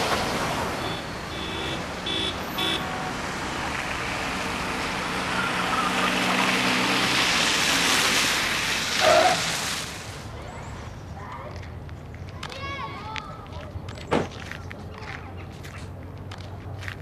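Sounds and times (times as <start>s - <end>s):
car horn toots: 0.8s - 3.1s.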